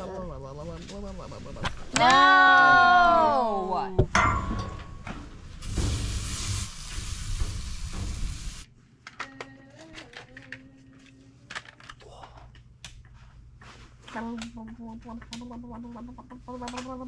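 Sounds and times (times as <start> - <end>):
meat sizzling on a grill: 5.6 - 8.6.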